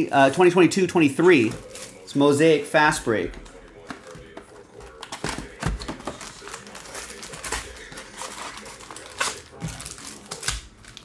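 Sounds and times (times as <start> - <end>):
crinkling foil wrappers: 1.4 - 2.2, 4.2 - 11.0.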